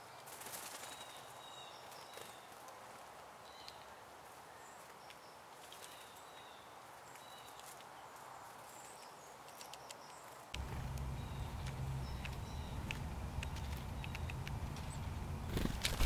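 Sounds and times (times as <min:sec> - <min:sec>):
small songbirds chirping: 0:00.0 - 0:02.6, 0:03.4 - 0:16.0
loud low rumble: 0:10.6 - 0:16.0.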